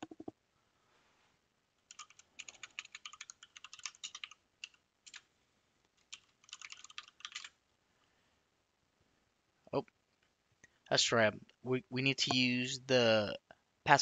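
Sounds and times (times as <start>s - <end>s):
faint keyboard typing: 0.0s - 0.4s, 1.8s - 5.3s, 5.9s - 7.6s.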